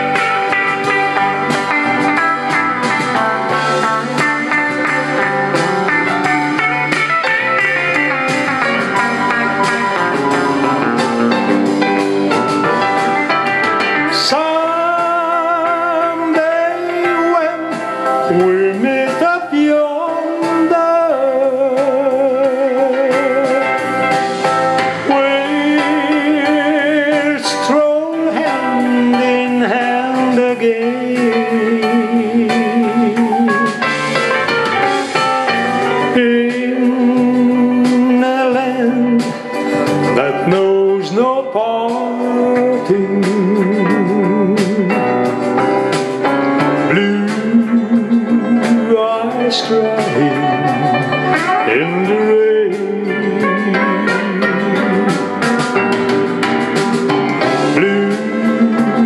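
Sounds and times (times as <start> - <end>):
country ballad with steel guitar: 0.0 - 34.8
man singing long notes: 13.9 - 23.9, 25.0 - 33.9, 36.0 - 45.5, 46.8 - 55.6, 57.6 - 59.0.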